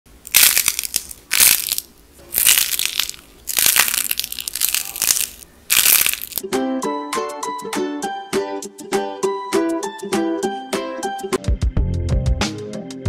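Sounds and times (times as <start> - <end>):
dried clay cracking and crumbling: 0.2 - 6.4
music: 5.7 - 13.0.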